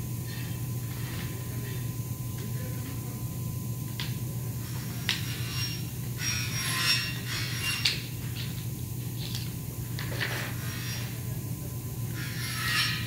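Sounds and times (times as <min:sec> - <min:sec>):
low machinery hum: 0:00.0 - 0:13.0
metal scraping with ring: 0:04.6 - 0:08.2, 0:10.3 - 0:11.2, 0:12.1 - 0:13.0.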